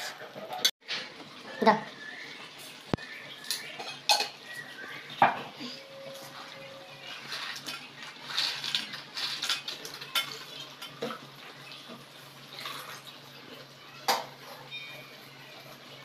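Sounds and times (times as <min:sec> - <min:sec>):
spatula scraping metal wok: 0:05.9 - 0:10.5
fried balls rattling into pan: 0:07.0 - 0:11.3.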